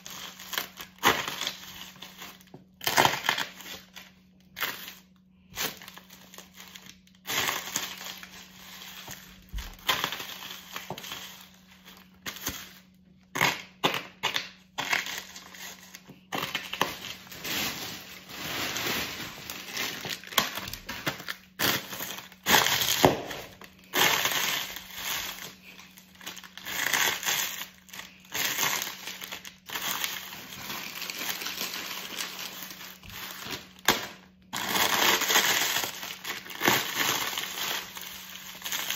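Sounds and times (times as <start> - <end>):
crisp packets crinkling: 0.0 - 38.9.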